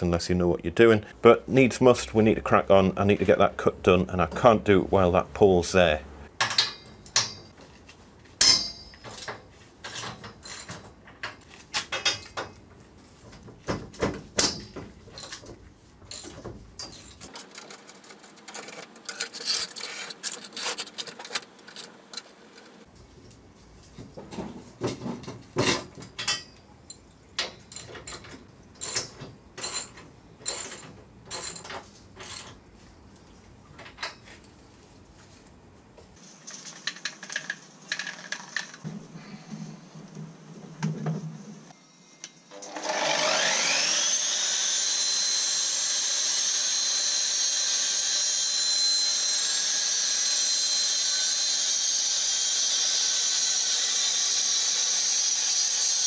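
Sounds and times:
sharp metal clicks and knocks: 6.4 - 7.6
cut-off saw cutting into wall: 42.5 - 56.0.

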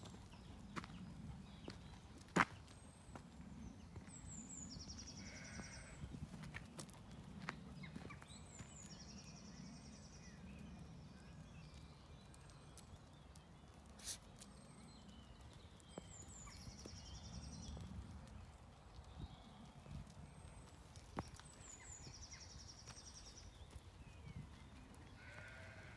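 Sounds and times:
footsteps on gravel: 0.0 - 4.2, 5.2 - 8.9.

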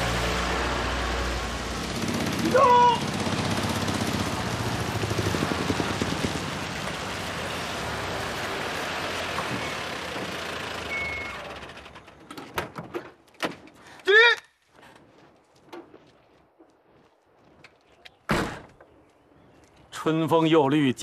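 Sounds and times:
car driving on dirt road: 0.0 - 12.6.

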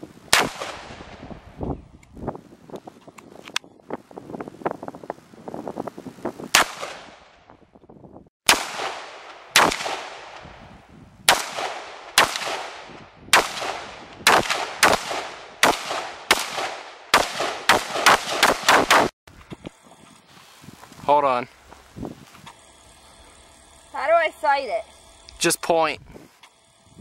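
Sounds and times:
rifle shots: 0.3 - 1.2, 6.6 - 7.2, 8.5 - 10.5, 11.3 - 19.1.

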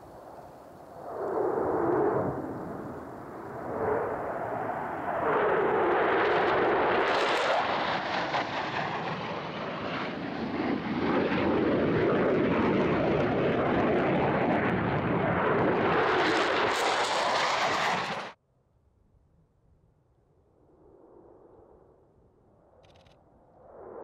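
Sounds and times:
fighter jet roaring past: 0.1 - 18.4.

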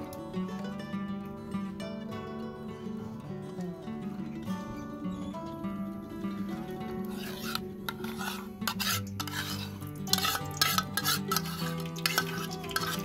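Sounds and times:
metal spoon scraping bowl: 6.5 - 13.0.

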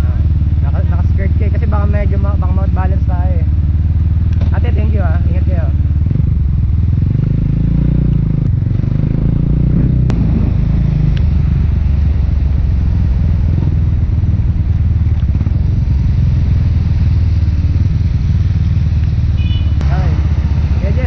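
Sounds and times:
motorcycle engine running: 0.0 - 21.0
wind rumble on microphone: 4.2 - 21.0.

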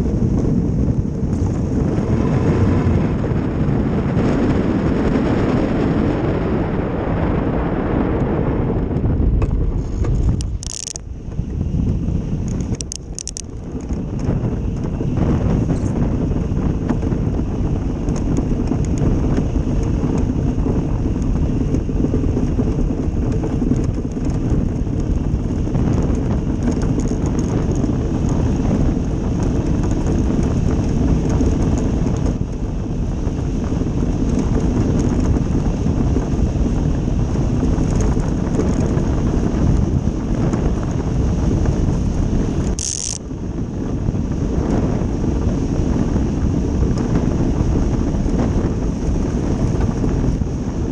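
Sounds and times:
wind buffeting microphone: 0.0 - 50.9.

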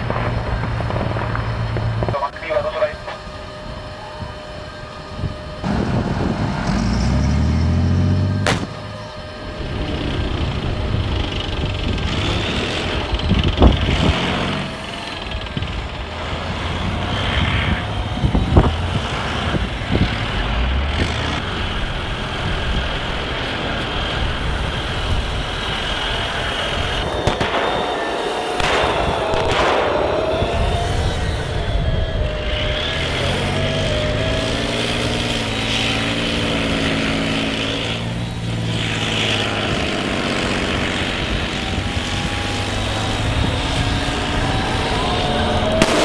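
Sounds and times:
simulated engine sound: 0.0 - 46.0
toy motor and track noise: 9.0 - 28.6, 30.0 - 45.8.

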